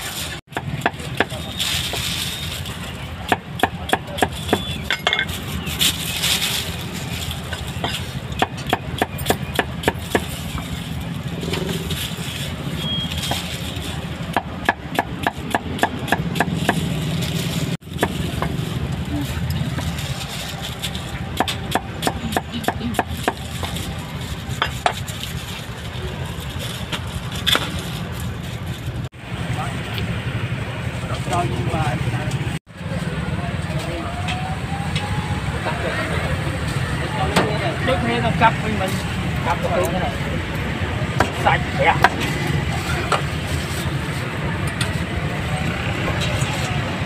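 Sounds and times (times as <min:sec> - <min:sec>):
cleaver chopping meat on wood: 0:03.3 - 0:04.8, 0:14.3 - 0:16.9.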